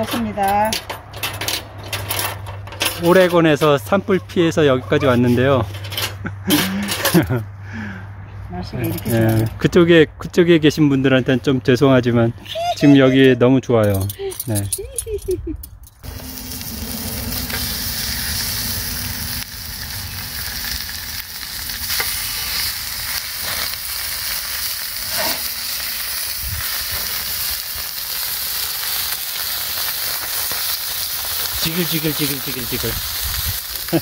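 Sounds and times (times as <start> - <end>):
steaks sizzling on a griddle: 16.0 - 34.0.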